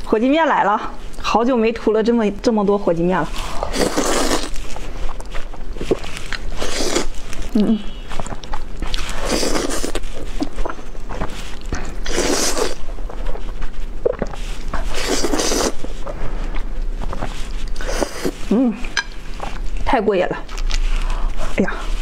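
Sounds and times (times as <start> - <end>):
person slurping noodles: 3.4 - 4.6, 5.8 - 7.8, 9.0 - 10.5, 12.0 - 12.9, 14.0 - 15.8, 17.7 - 18.6
wet chewing clicks: 3.9 - 10.8.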